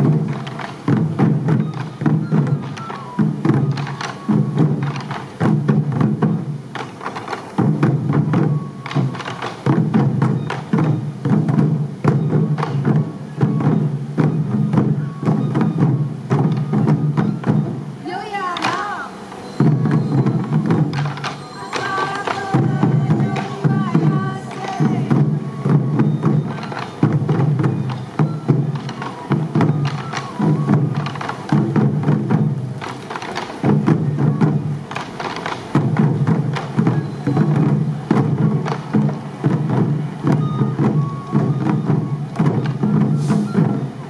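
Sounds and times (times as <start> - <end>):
high flute melody: 0.0 - 5.8, 7.9 - 44.0
taiko drums beaten in rhythm: 0.0 - 44.0.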